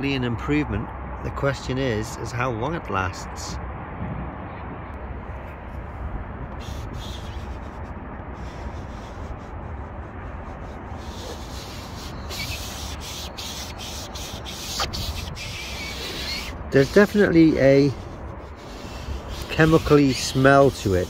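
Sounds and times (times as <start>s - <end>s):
foam sponge rubbing on plastic: 6.6s - 21.0s.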